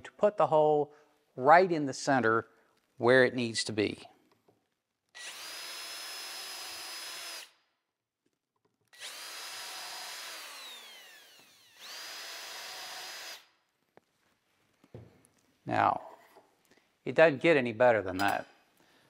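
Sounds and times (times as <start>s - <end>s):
cordless drill spinning: 5.2s - 7.6s, 8.9s - 13.5s.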